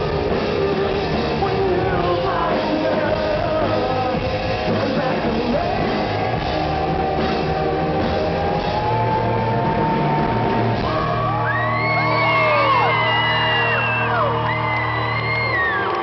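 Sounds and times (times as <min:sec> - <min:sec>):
rock band playing: 0:00.0 - 0:16.0
crowd cheering and whistling: 0:05.2 - 0:16.0.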